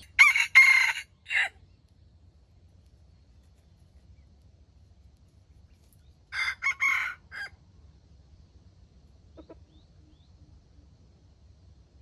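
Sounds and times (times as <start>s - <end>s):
rooster crowing: 0.0s - 1.6s, 6.3s - 7.6s.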